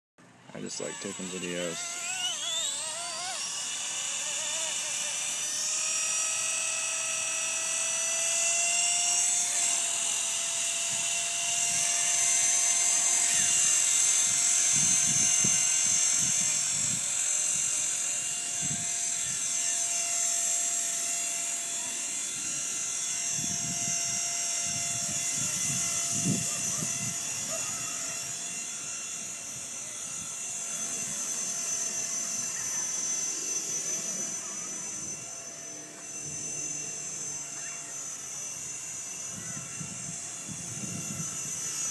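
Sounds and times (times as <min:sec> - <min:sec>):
rc helicopter motor whine: 0:00.2 - 0:41.9
wind rumbling on microphone: 0:23.4 - 0:27.5, 0:39.3 - 0:41.7.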